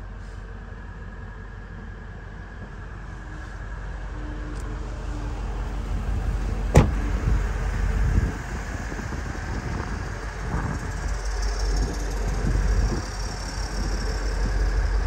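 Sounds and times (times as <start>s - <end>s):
car engine idling: 0.0s - 15.0s
car door shutting: 6.6s - 7.2s.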